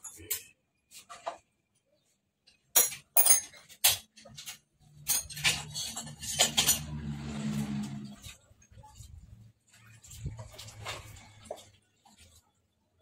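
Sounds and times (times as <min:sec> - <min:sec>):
metal tools clinking on workbench: 0:02.7 - 0:07.0.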